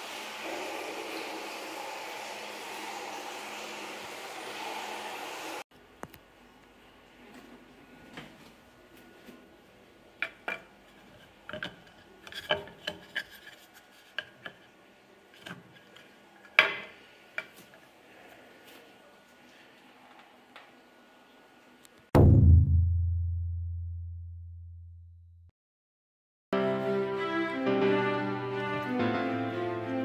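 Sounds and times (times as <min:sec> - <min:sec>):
wood rubbing: 0:10.2 - 0:17.5.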